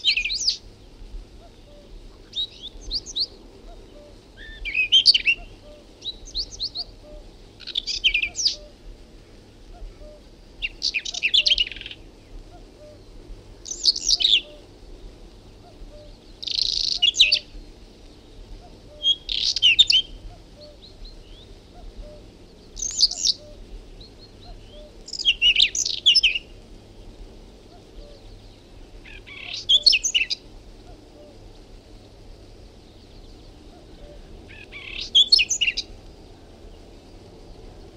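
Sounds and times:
bird singing high-pitched phrases: 1.4s - 8.8s, 10.0s - 12.0s, 13.7s - 14.6s, 15.6s - 17.5s, 18.9s - 22.2s, 22.8s - 23.6s, 24.3s - 26.5s, 29.1s - 30.4s, 33.9s - 35.9s.

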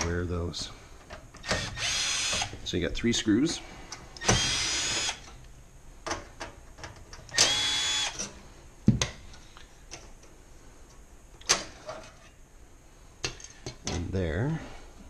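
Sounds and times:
cordless drill whining: 1.4s - 2.5s, 4.2s - 5.2s, 7.3s - 8.2s.

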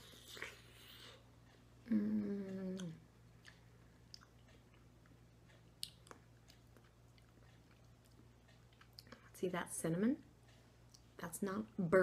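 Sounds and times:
person chewing with wet smacks: 0.0s - 9.4s, 10.5s - 11.2s
person humming low: 1.8s - 3.1s.

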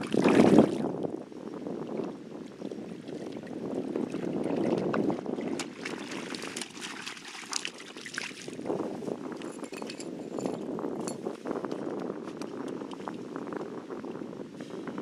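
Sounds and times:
water lapping against rocks: 0.0s - 1.0s, 2.7s - 8.7s
fish splashing in shallows: 5.4s - 8.6s.

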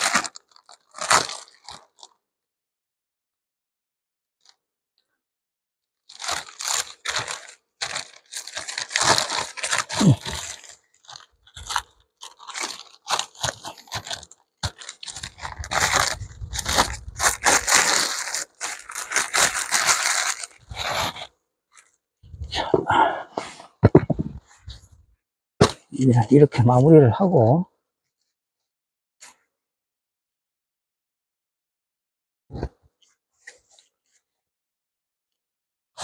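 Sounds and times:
plastic sheeting crinkling: 0.0s - 2.1s, 6.1s - 21.3s.

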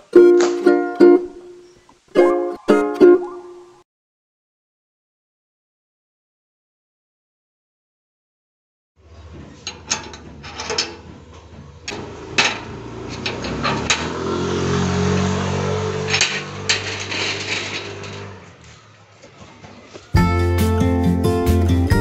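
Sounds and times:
gate bolt sliding back: 9.5s - 14.3s, 15.2s - 18.6s.

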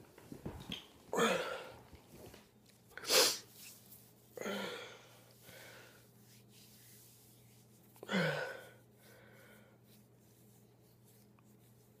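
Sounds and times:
quiet breaths: 2.9s - 12.0s.

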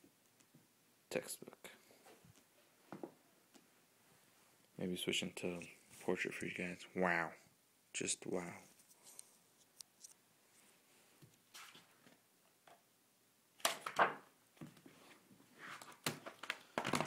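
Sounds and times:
book pages rustling: 13.8s - 17.0s.

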